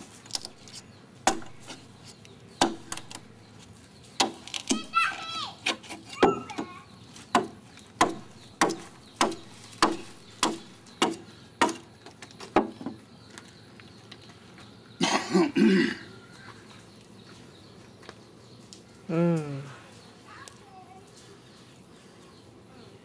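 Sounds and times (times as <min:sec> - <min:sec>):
blade chopping into wood: 0:01.2 - 0:01.9, 0:02.6 - 0:03.3, 0:04.2 - 0:05.0, 0:07.3 - 0:11.8
person coughing: 0:15.0 - 0:16.1.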